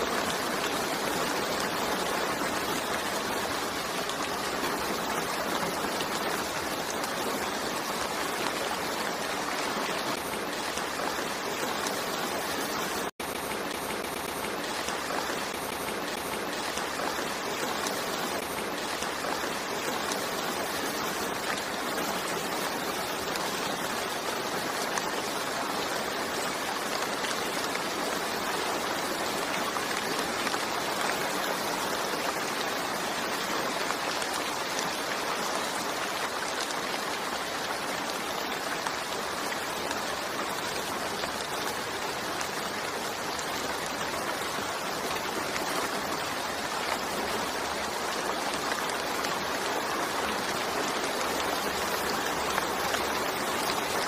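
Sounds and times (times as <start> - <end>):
steady rainfall: 0.0 - 54.0.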